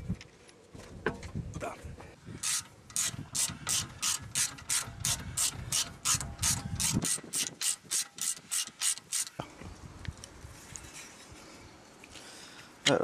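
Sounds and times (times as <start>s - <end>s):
ratchet wrench clicking: 2.4s - 9.4s.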